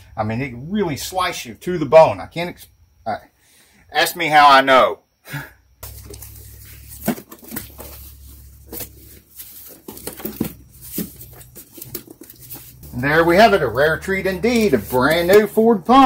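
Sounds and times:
low steady hum: 5.6s - 16.0s
cardboard box handled: 5.8s - 13.0s.

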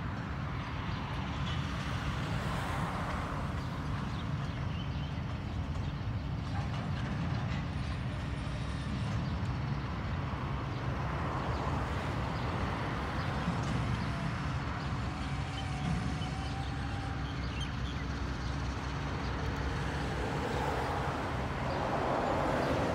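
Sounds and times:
distant locomotive rumble: 0.0s - 22.9s.

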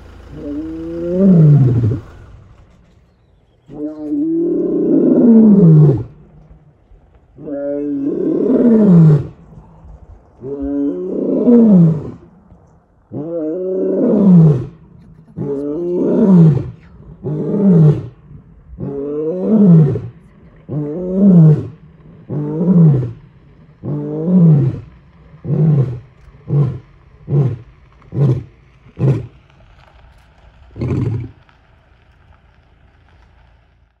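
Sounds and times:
lion roaring and grunting: 0.3s - 2.5s, 3.6s - 6.4s, 7.4s - 9.8s, 10.4s - 12.4s, 13.1s - 29.4s, 30.8s - 31.4s.

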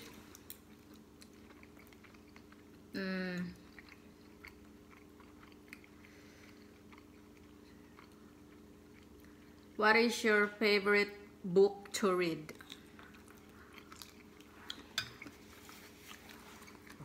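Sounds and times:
chewing and eating clicks: 0.3s - 9.7s
person humming: 3.0s - 3.6s.

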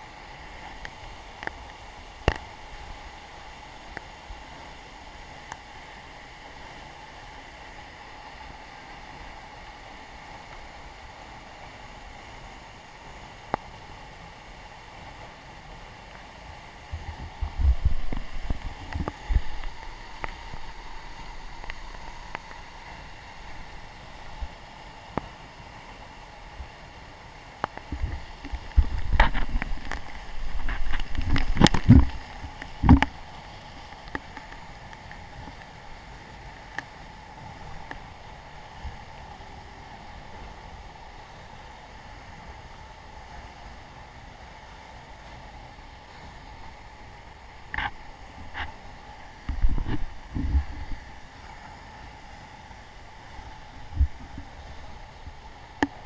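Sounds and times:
waterfall rushing: 0.0s - 56.0s
wind buffeting microphone: 16.9s - 22.2s.

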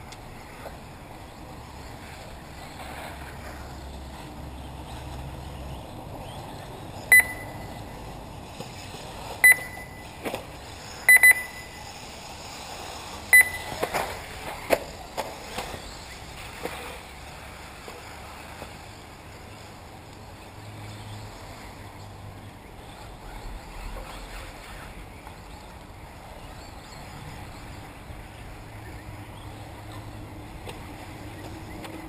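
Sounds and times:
short high electronic beeps: 7.1s - 7.8s, 9.4s - 10.1s, 11.1s - 11.9s, 13.3s - 13.8s.

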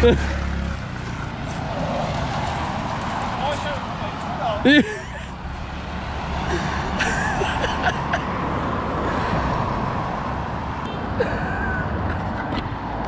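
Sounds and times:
scooter engine running: 0.0s - 3.3s.

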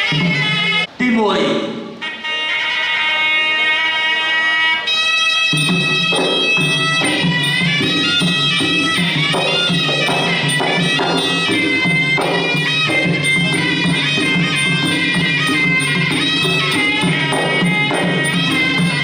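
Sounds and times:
reed pipe melody: 0.0s - 19.0s
small cymbals: 4.9s - 19.0s
drums beating: 5.5s - 19.0s.

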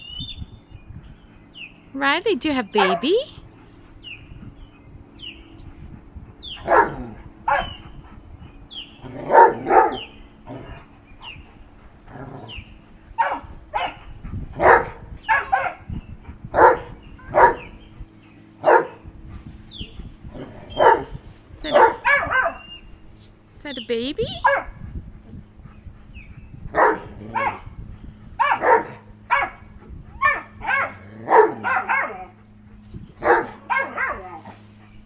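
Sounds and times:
dog barking: 2.8s - 3.2s, 6.6s - 7.8s, 9.2s - 10.1s, 13.2s - 14.0s, 14.6s - 15.8s, 16.6s - 17.7s, 18.6s - 19.0s, 20.7s - 22.6s, 24.4s - 24.8s, 26.8s - 27.7s, 28.4s - 29.6s, 30.2s - 32.3s, 33.2s - 34.5s.

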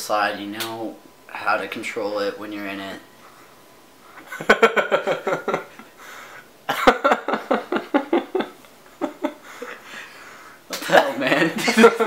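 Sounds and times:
young man laughing hard: 4.2s - 6.0s, 6.7s - 10.1s, 10.8s - 12.0s.

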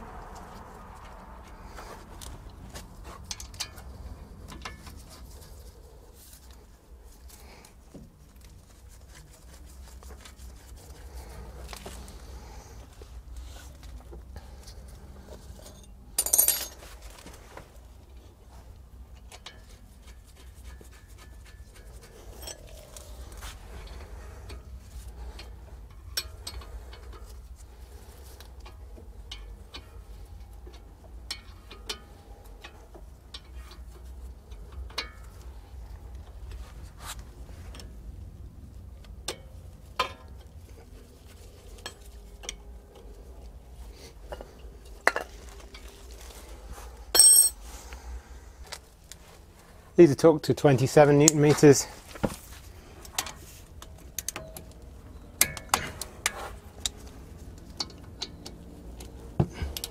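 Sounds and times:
metallic clinks of tools: 47.1s - 47.6s.

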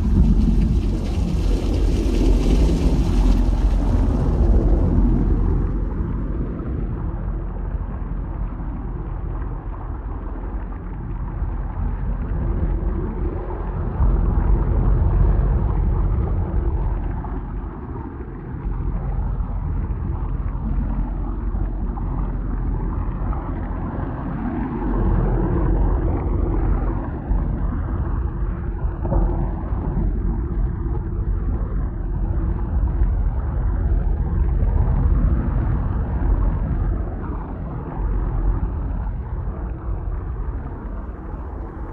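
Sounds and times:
synthesized thunder rumble: 0.0s - 8.0s.

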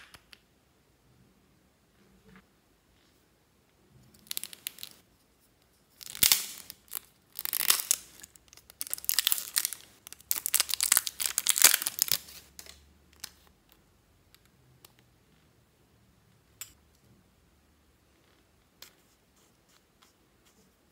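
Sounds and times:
plastic crinkling and rustling: 6.0s - 13.4s.

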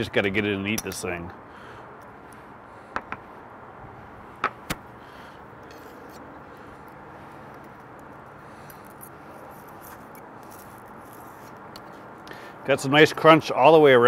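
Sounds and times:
steady background noise: 0.0s - 14.0s.

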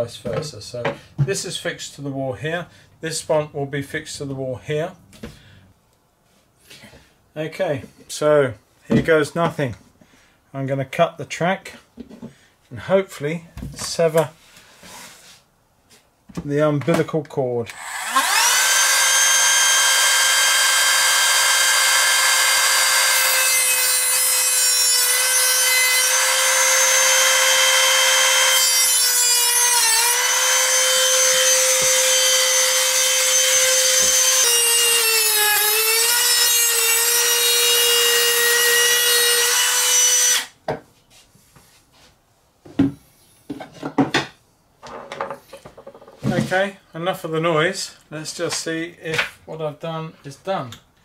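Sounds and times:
rotary tool high whine: 17.7s - 40.5s.

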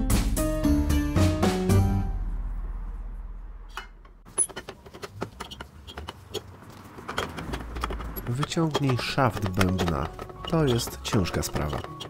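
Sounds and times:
music: 0.0s - 2.4s, 9.0s - 12.0s.

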